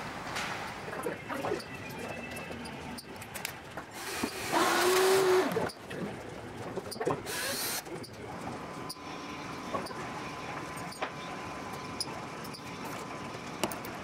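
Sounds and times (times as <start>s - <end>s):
cordless drill motor whine: 4.0s - 5.7s.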